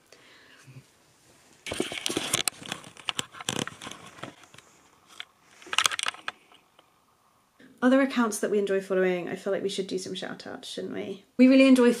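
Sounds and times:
fabric rustling on microphone: 0:00.8 - 0:06.8.

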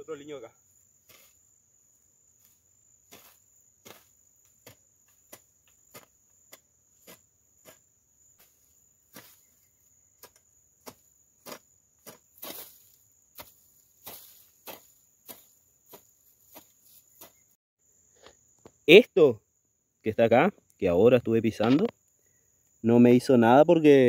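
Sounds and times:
insects droning: 0:00.0 - 0:24.0
footsteps through weeds and brush: 0:02.4 - 0:07.8, 0:08.4 - 0:17.5.

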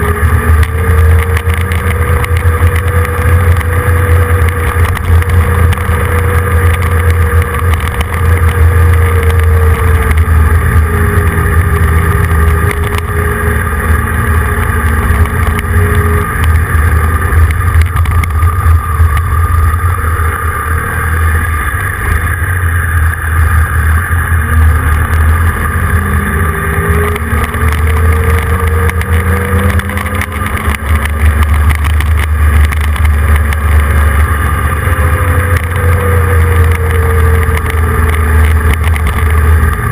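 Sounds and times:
vehicle engine running: 0:00.0 - 0:39.9
wind noise on microphone: 0:00.0 - 0:39.9.

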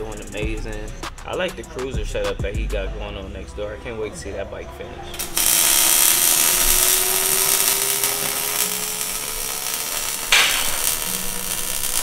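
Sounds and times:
welding arc crackling: 0:05.1 - 0:12.0.

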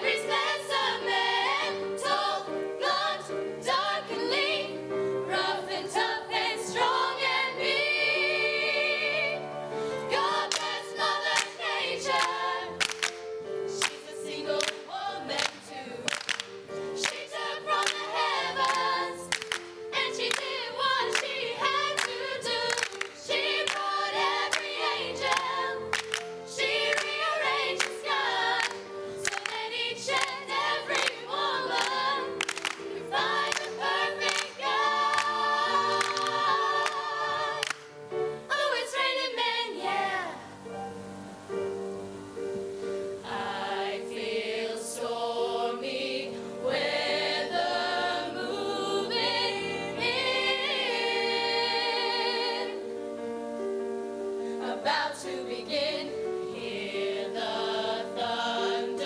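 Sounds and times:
female choir singing: 0:00.0 - 0:40.6, 0:43.2 - 0:53.0, 0:54.6 - 0:59.0
rhythmic hand claps: 0:10.3 - 0:37.9.

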